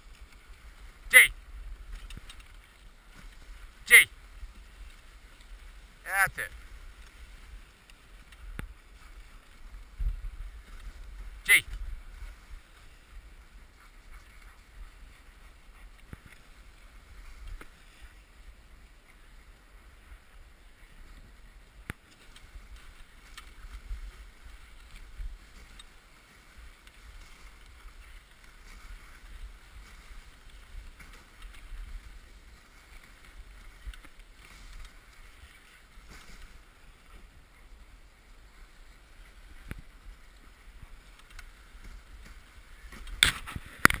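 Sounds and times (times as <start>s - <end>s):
sled clicks and knocks: 0.0s - 19.2s, 20.0s - 37.4s, 39.1s - 44.0s
sled runners hissing over snow: 0.0s - 43.9s.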